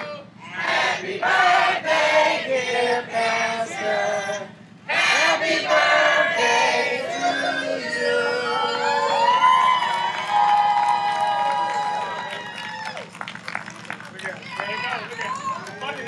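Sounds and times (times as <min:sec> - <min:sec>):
group of people singing: 0:00.4 - 0:09.3.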